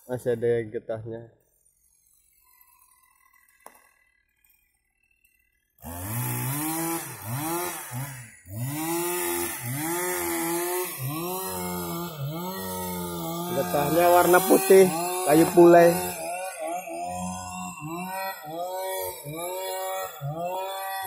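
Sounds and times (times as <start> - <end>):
chainsaw engine revving: 5.8 - 21.0.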